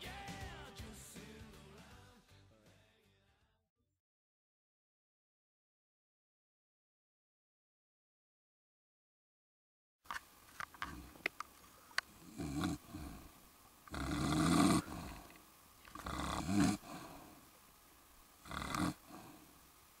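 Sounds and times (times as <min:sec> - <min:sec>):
man snoring: 0:12.2 - 0:13.3, 0:13.9 - 0:15.3, 0:16.0 - 0:17.4, 0:18.4 - 0:19.5.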